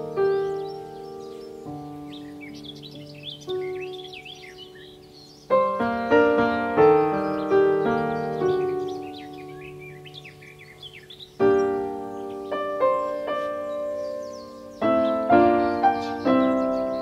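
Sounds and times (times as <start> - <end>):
soft solo piano: 0.0 - 17.0.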